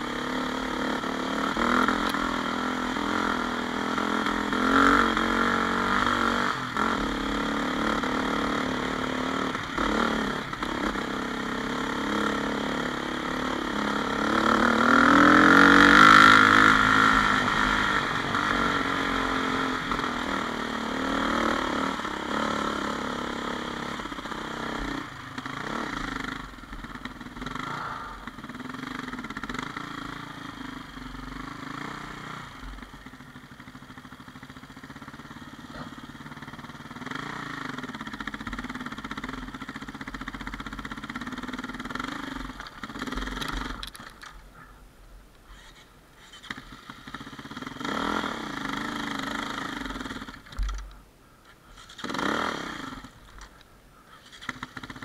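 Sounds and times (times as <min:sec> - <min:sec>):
motorcycle engine revving: 0:00.0 - 0:44.7, 0:45.6 - 0:51.0, 0:51.7 - 0:55.0.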